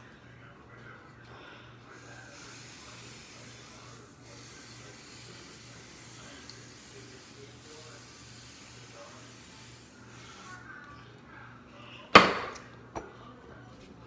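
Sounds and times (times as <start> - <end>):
aerosol spray hissing: 2.0 - 10.6.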